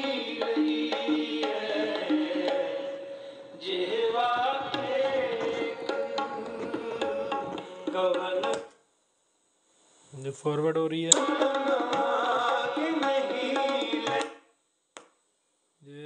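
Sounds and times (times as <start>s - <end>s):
music with tabla from speakers: 0.0s - 8.7s, 11.1s - 14.4s.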